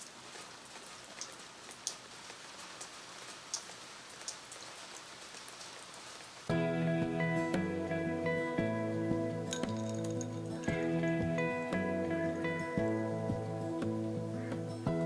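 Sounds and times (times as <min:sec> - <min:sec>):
rain on wooden deck: 0:00.0 - 0:15.0
music: 0:06.5 - 0:15.0
water drops ticking: 0:09.5 - 0:12.1.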